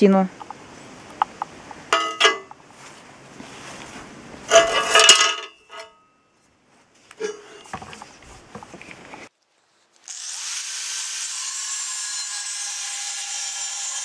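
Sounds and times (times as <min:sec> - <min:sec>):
metal plate clattering on steel: 0:02.0 - 0:02.5, 0:04.5 - 0:06.0.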